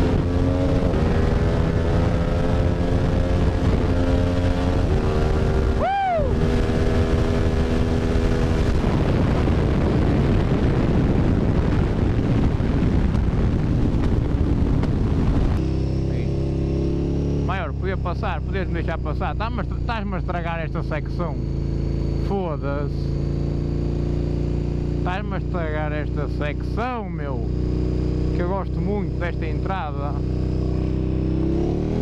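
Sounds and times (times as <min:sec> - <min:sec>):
wind noise on microphone: 0:00.0 - 0:20.0
motorcycle engine running: 0:00.0 - 0:32.0.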